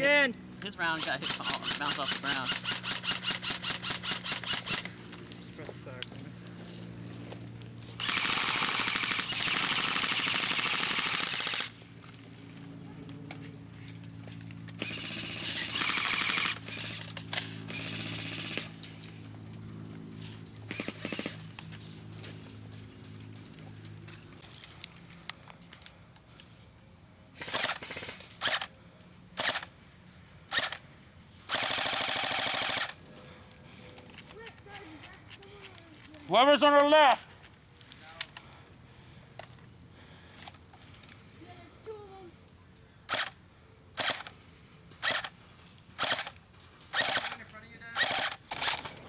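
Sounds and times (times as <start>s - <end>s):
airsoft rifle automatic fire: 1.0s - 4.9s, 8.0s - 11.8s, 14.8s - 18.8s, 20.7s - 21.4s, 27.4s - 28.7s, 31.5s - 33.0s, 44.0s - 44.3s, 46.0s - 46.3s, 46.9s - 47.4s, 48.0s - 49.0s.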